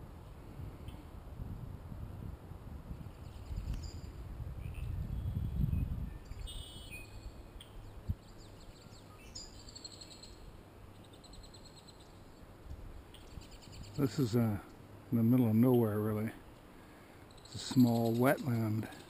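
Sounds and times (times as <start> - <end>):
small birds chirping and singing: 3.0 - 19.0
bird trill: 6.1 - 12.2, 17.2 - 19.0.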